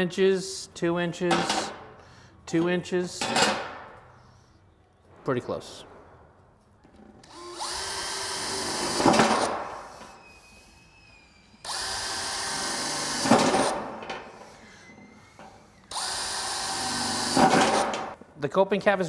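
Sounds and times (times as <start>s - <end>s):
drill motor winding down: 7.2s - 13.7s, 14.4s - 17.9s
cordless drill boring sheet metal: 7.2s - 13.8s, 14.4s - 18.2s.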